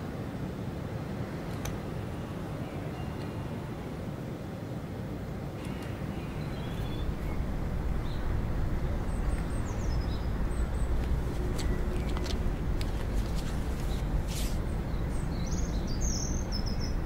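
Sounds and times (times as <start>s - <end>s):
low steady rumble: 5.6s - 17.0s.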